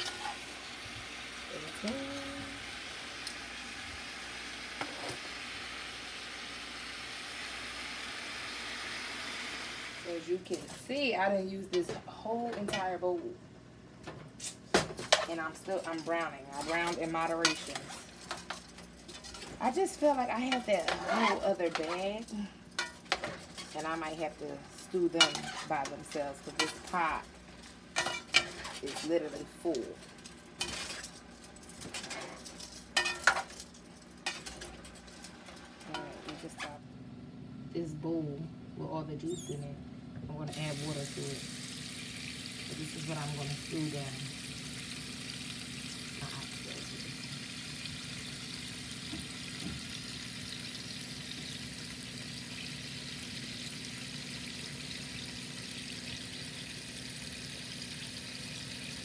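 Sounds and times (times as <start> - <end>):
meat sizzling in pot: 0.0 - 10.6, 15.1 - 33.5, 40.5 - 59.0
metal tongs clinking on pot: 15.1 - 29.9, 30.6 - 35.3.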